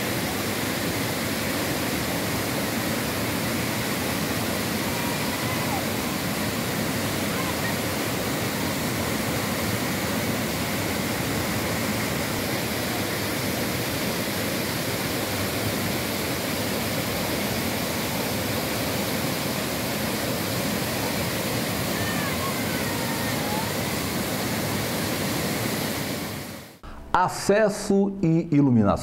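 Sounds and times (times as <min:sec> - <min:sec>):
waterfall rushing: 0:00.0 - 0:26.9.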